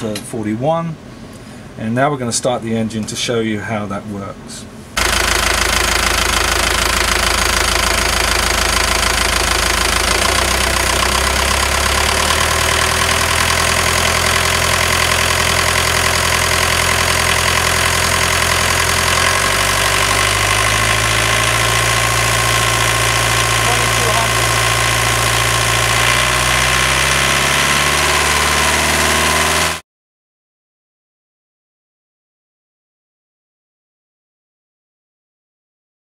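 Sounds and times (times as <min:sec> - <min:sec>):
diesel engine running: 0:05.0 - 0:29.8.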